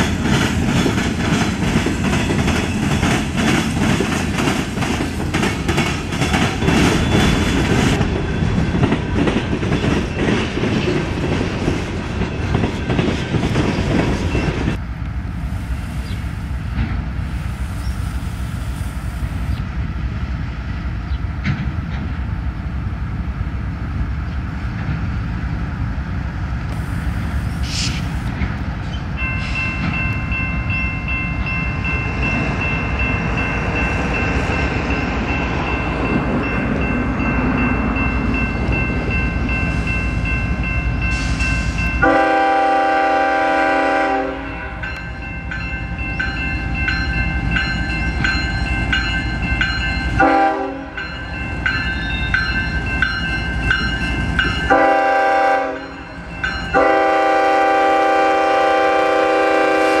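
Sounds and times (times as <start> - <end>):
diesel locomotive rumbling: 0.0 - 60.0
regular ringing bell: 29.2 - 42.1, 44.5 - 50.2, 51.0 - 54.8, 55.8 - 56.8
train horn: 42.0 - 45.0, 50.2 - 51.1, 54.7 - 56.1, 56.7 - 60.0.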